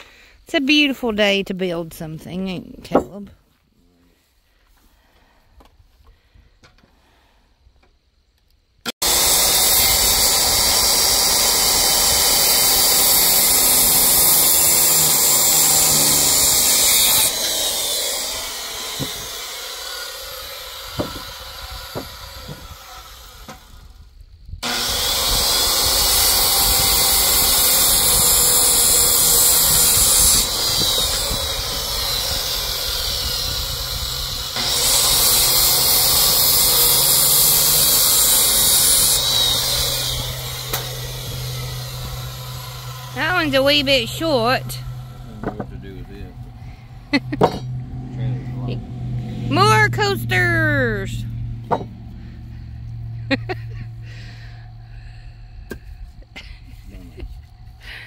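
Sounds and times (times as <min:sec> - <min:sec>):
circular saw cutting wood: 0:08.9 - 0:58.0
sharp knocks: 0:51.6 - 0:52.0.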